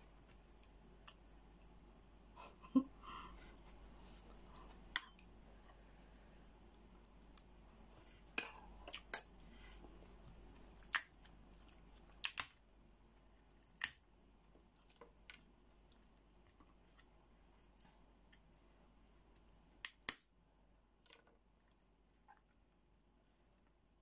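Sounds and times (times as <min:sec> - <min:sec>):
crab shell cracking: 0:10.7 - 0:12.6, 0:13.6 - 0:14.0.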